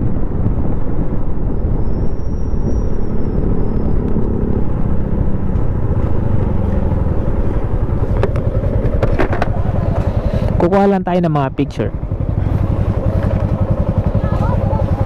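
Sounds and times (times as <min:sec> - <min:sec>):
wind noise: 0:00.0 - 0:10.6
vehicle engine rumble: 0:00.0 - 0:15.0.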